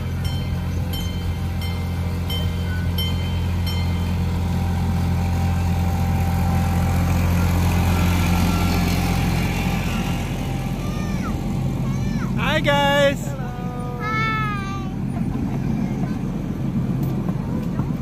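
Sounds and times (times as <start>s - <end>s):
miniature train engine droning: 0.0s - 18.0s.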